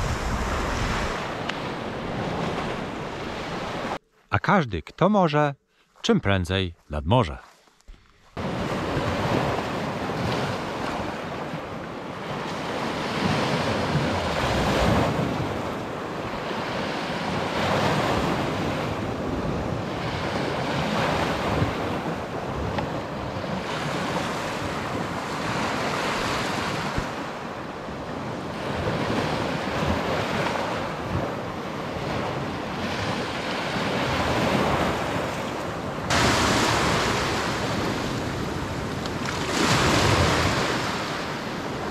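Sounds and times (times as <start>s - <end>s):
waves washing onto beach: 0.0s - 4.0s, 8.4s - 41.9s
wind on microphone: 0.0s - 4.0s.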